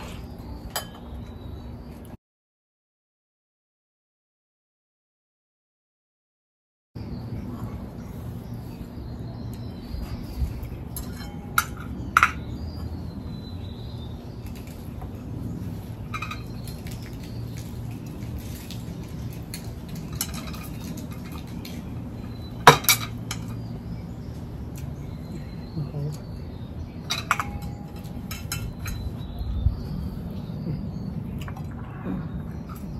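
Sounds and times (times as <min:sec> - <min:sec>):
low steady hum: 0:07.0 - 0:32.9.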